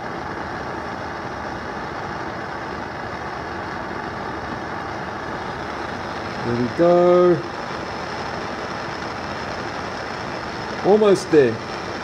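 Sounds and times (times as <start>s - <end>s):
gas burner flame rushing: 0.0s - 12.0s.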